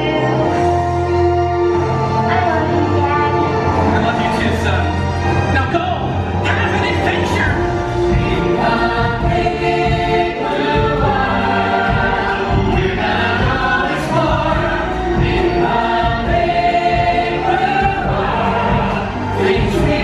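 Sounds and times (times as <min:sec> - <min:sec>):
musical accompaniment: 0:00.0 - 0:20.0
group singing sustained notes: 0:07.8 - 0:20.0.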